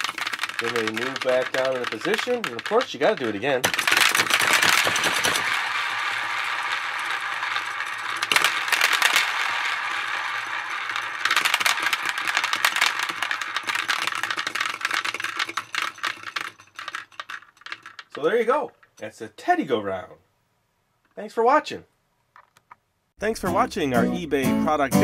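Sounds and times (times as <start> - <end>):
plastic balls rattling in dome: 0.0 - 19.0.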